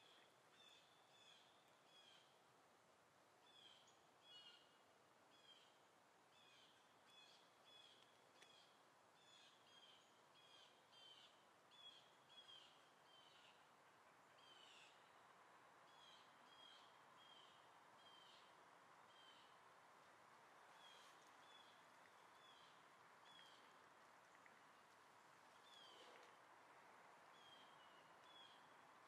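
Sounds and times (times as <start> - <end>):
low steady outdoor hiss: 0.0 - 29.0
faint bird chirping: 3.4 - 15.2, 15.8 - 19.7, 20.6 - 26.4, 27.2 - 28.8.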